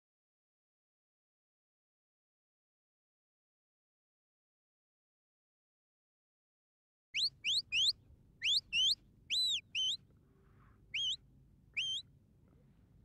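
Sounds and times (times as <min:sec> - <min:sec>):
shepherd's whistle notes: 0:07.2 - 0:10.0, 0:11.0 - 0:11.2, 0:11.8 - 0:12.0.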